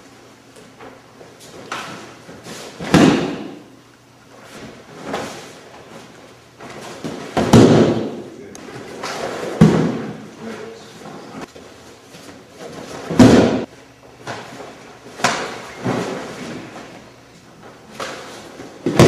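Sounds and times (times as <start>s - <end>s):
bodies slammed onto padded mats: 2.8s - 3.6s, 6.9s - 8.3s, 9.0s - 10.2s, 12.8s - 13.7s, 18.7s - 19.0s.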